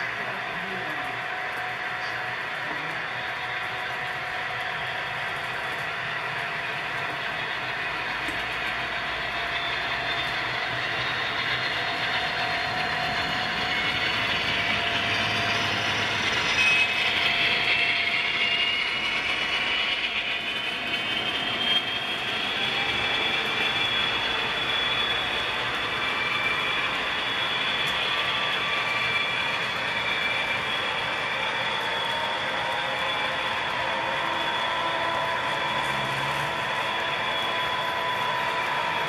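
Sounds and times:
high whine: 0.0s - 39.0s
wheels rolling on track: 0.0s - 39.0s.

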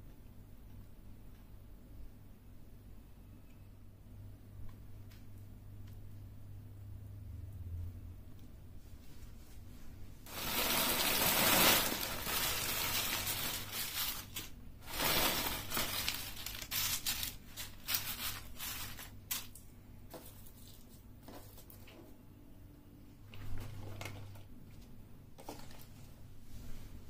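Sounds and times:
chips pouring into glass dish: 10.3s - 17.3s
chips clicking and crackling: 10.3s - 19.6s
chip bag crinkling: 10.3s - 19.7s.

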